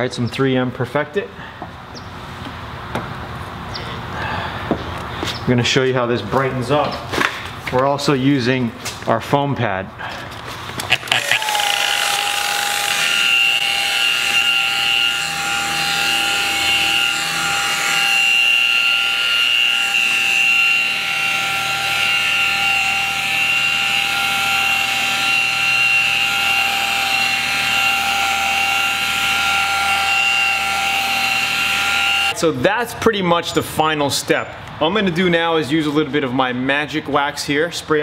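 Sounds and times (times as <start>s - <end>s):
rotary buffer motor whining: 10.8s - 32.4s.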